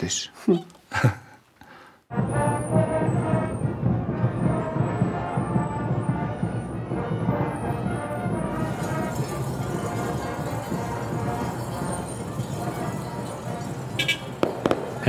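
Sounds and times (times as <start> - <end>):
music with low drum beat: 2.2 - 13.7.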